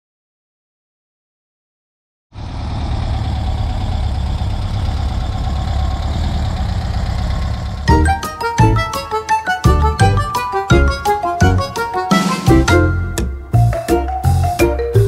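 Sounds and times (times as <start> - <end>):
car engine running: 2.3 - 11.8.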